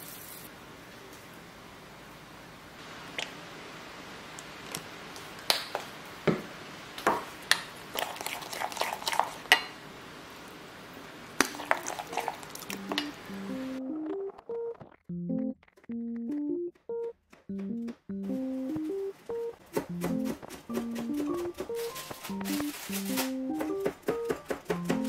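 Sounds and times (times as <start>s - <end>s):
music notes: 11.5s - 25.0s.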